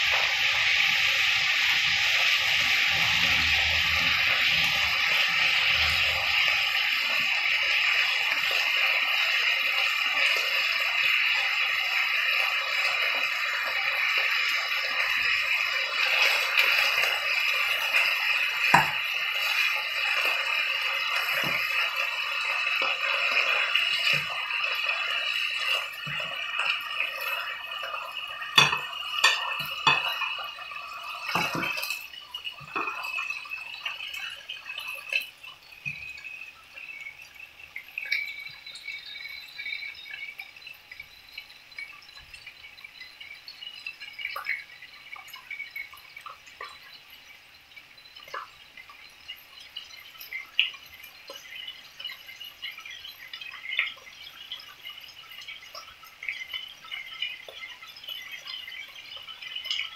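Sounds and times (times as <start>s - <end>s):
steaks sizzling in a frying pan: 0.0s - 40.6s.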